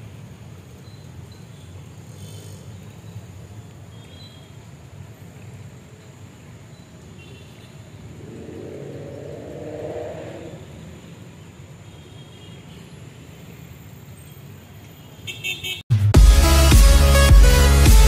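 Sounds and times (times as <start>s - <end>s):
rushing swell: 8.1s - 11.1s.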